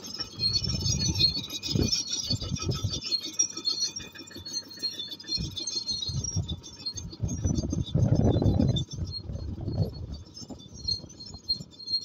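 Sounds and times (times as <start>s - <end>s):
bulldozer tracks clinking and squeaking: 0.0s - 12.0s
wind buffeting microphone: 0.4s - 3.0s, 5.4s - 11.6s.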